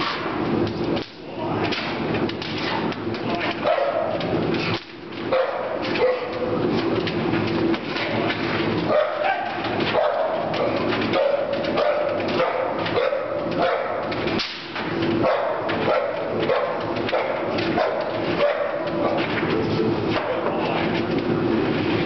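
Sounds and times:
dog barking rapidly: 3.6s - 4.2s, 5.3s - 6.3s, 8.9s - 10.4s, 11.2s - 14.0s, 15.2s - 18.8s.

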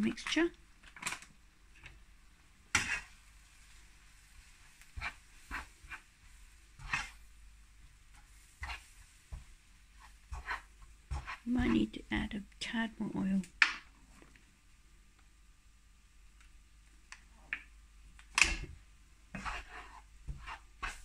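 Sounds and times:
food sizzling in frying pan: 2.6s - 12.0s, 19.3s - 21.0s
spatula scraping and knocking pan: 2.7s - 12.0s, 18.5s - 21.0s.

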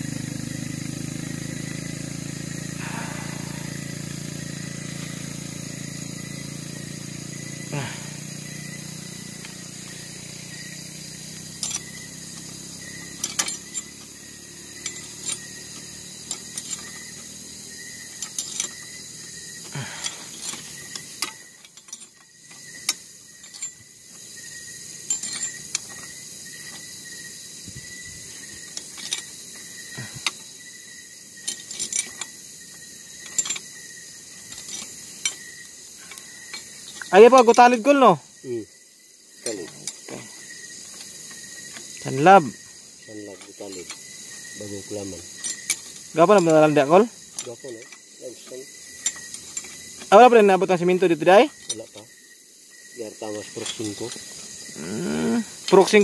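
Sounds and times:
wrench metallic clicks: 11.3s - 19.0s, 20.0s - 24.2s, 25.0s - 26.9s, 28.3s - 29.4s, 31.4s - 32.4s, 33.2s - 37.8s, 43.4s - 44.6s, 45.2s - 48.0s, 48.9s - 52.1s.

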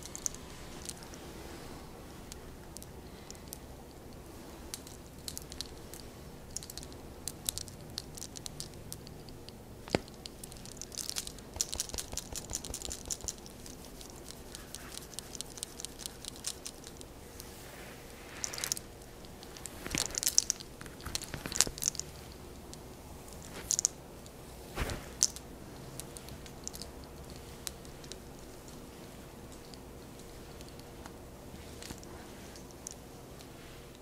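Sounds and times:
hair crackling and rustling: 0.0s - 34.0s.

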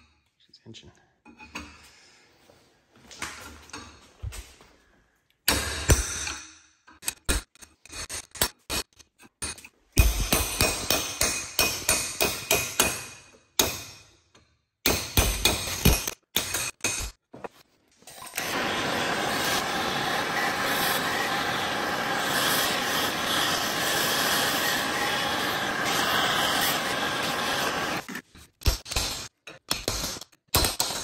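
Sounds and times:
hammer striking metal chisel: 9.4s - 14.2s, 14.8s - 17.2s.

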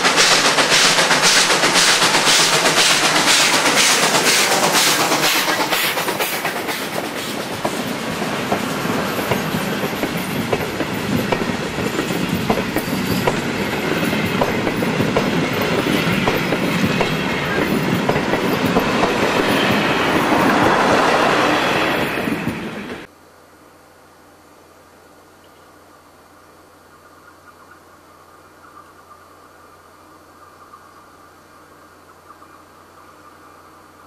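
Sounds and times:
train wheels clicking over rail joints: 0.0s - 23.1s.

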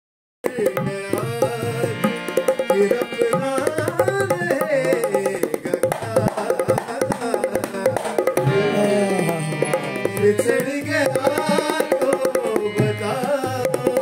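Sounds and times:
hand drum rhythm: 0.4s - 14.0s
sliding melody: 8.3s - 13.6s.

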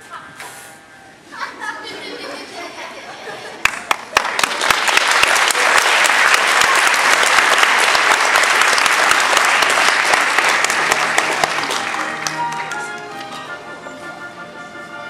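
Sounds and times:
audience applauding: 3.6s - 13.4s
music: 10.6s - 15.0s.

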